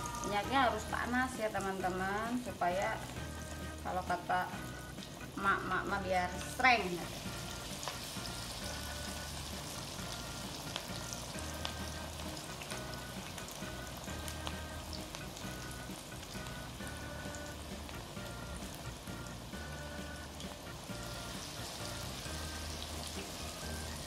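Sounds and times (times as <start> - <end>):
fritters sizzling in hot oil: 0.0 - 24.0.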